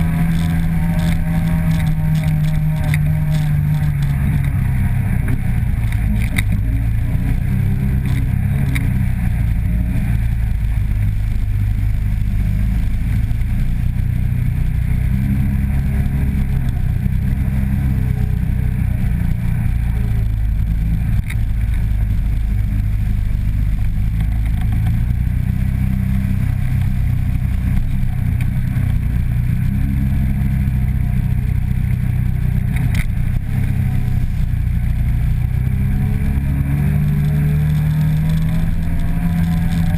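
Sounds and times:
light rattling clatter: 0:00.0 - 0:07.1
atv engine running: 0:00.0 - 0:39.9.

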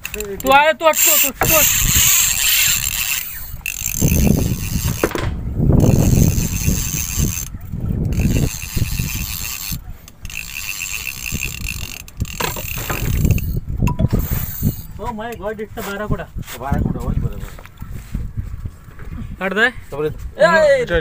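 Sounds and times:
fishing reel ratchet clicking: 0:00.0 - 0:05.2, 0:05.8 - 0:07.5, 0:08.1 - 0:15.0
wind rumbling on microphone: 0:01.3 - 0:21.0.

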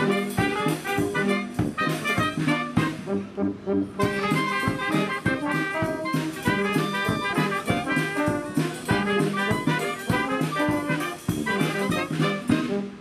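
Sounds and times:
upbeat brass band music: 0:00.0 - 0:13.0.

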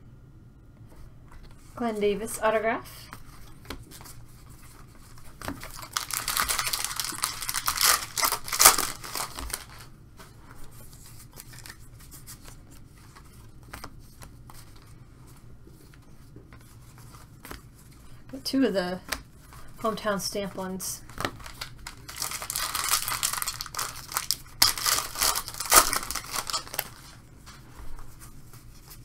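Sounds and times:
cards rustling and clicking: 0:03.1 - 0:09.9, 0:10.9 - 0:18.2, 0:21.1 - 0:29.0
foil wrapper tearing and crinkling: 0:05.5 - 0:09.9, 0:21.2 - 0:27.2.

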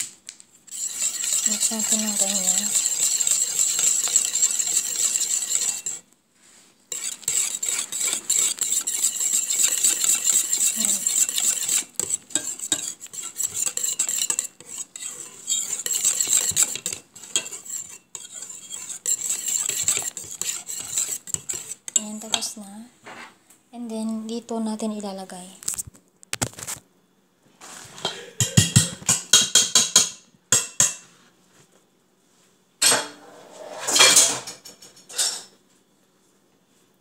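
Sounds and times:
wire whisk scraping metal pot: 0:00.7 - 0:06.1, 0:06.9 - 0:22.5.

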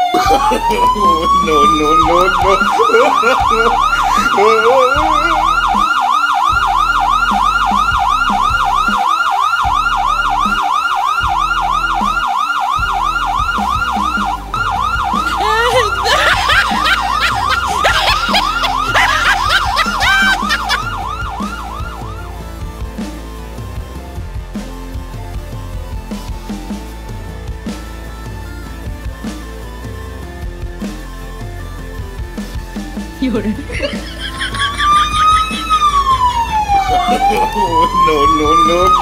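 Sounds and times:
yelping police siren: 0:00.0 - 0:22.3, 0:33.7 - 0:39.0.

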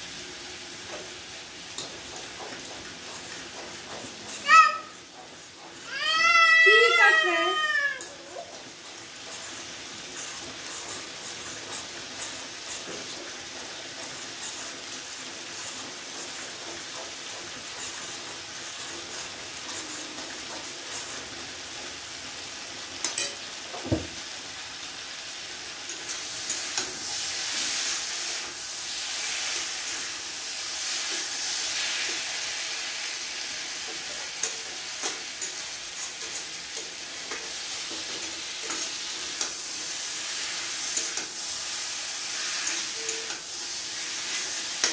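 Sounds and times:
curry sizzling in oil: 0:00.0 - 0:44.9
spatula scraping and tapping pan: 0:00.9 - 0:04.4, 0:22.9 - 0:24.2, 0:30.8 - 0:44.9.

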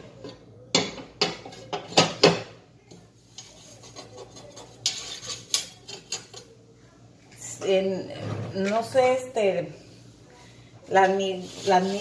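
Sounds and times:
scraping rustle: 0:11.1 - 0:12.0.

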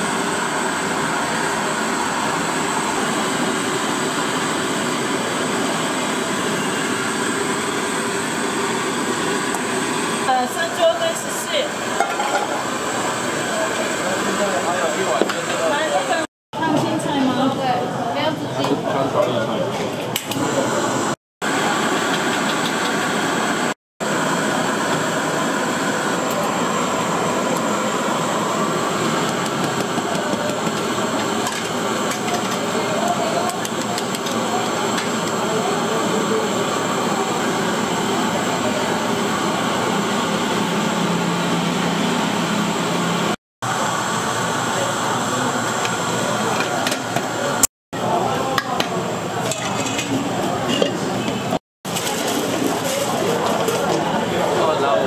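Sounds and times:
restaurant background noise: 0:00.9 - 0:23.3, 0:24.4 - 0:41.5, 0:43.7 - 0:55.0
faint voices: 0:26.1 - 0:40.6, 0:43.8 - 0:55.0.

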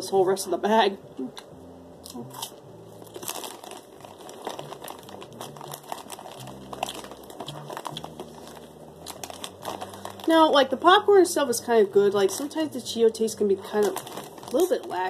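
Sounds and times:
plastic snack bag crinkling: 0:03.0 - 0:11.0, 0:12.0 - 0:15.0.

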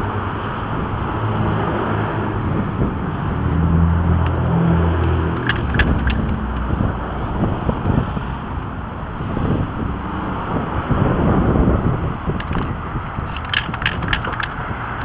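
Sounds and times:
steady rushing noise: 0:00.0 - 0:15.0
vehicle engine running: 0:00.0 - 0:15.0.

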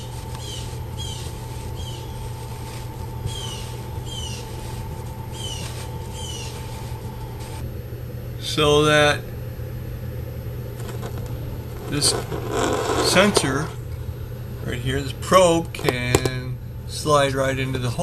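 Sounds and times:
copper tube squeaking in ductboard: 0:00.0 - 0:07.6, 0:10.9 - 0:13.7
steady low hum: 0:00.0 - 0:18.0.

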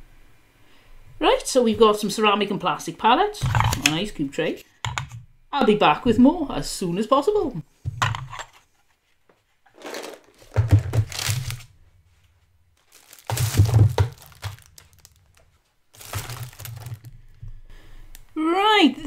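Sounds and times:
art supplies knocking on table: 0:07.9 - 0:08.4, 0:10.4 - 0:11.1, 0:13.3 - 0:14.6
plastic bags crinkling: 0:09.7 - 0:11.8, 0:12.8 - 0:17.3.

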